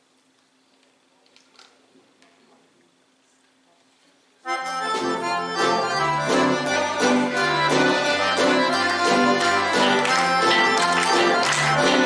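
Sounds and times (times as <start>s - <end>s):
accordions playing folk melody: 4.4s - 12.0s
rhythmic bass line: 4.9s - 12.0s.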